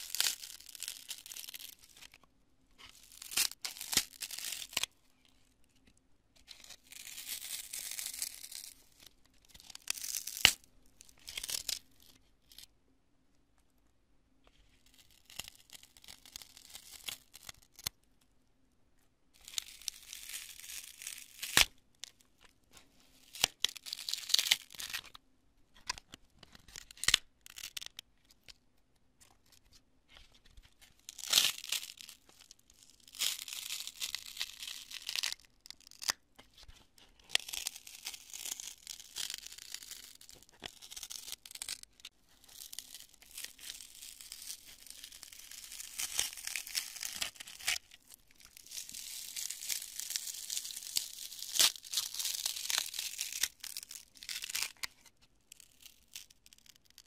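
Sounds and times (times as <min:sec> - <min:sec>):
foam crunching and crackling: 0:02.8 - 0:04.9, 0:06.6 - 0:08.7, 0:31.1 - 0:36.2, 0:37.2 - 0:57.0.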